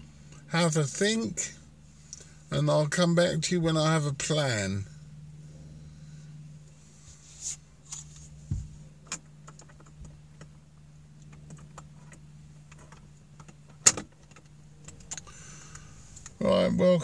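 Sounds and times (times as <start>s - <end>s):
steady low hum: 0.0s - 17.0s
handling clicks and knocks: 11.2s - 15.3s.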